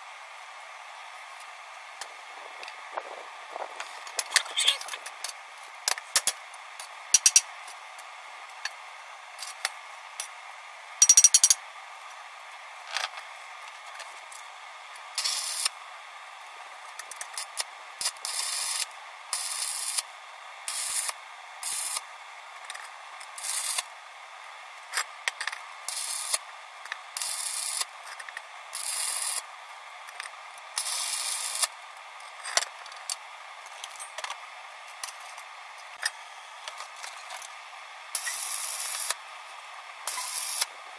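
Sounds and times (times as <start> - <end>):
welding arc crackling: 40.1 - 40.7.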